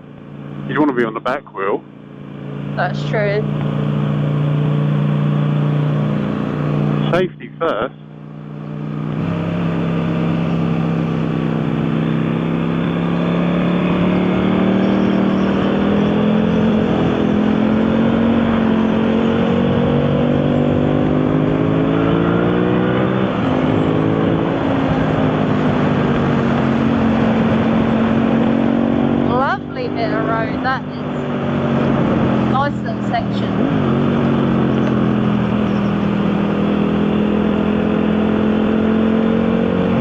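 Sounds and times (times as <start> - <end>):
motorcycle engine accelerating: 0.0 - 40.0.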